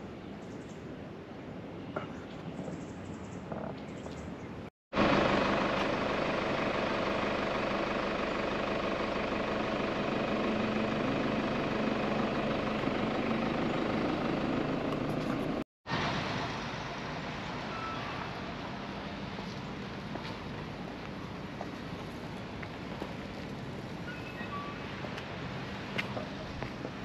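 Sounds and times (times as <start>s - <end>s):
vehicle engine running: 4.9s - 17.6s, 18.4s - 27.0s.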